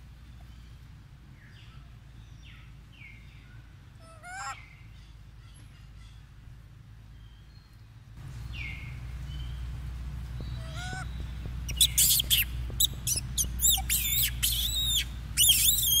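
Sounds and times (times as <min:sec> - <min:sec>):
low rumble: 0:08.0 - 0:15.8
young monkey squealing: 0:10.6 - 0:11.1, 0:11.7 - 0:16.0.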